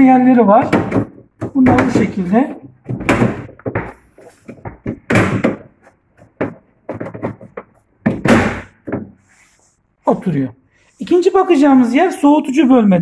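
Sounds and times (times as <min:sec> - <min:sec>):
knocks on plastic cover: 0:00.6 - 0:09.2
plastic cover clacking and clicking: 0:00.7 - 0:09.1.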